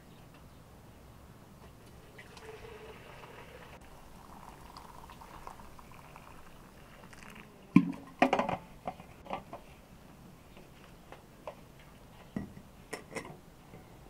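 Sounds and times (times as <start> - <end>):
water trickling into teapot: 2.1 - 7.6.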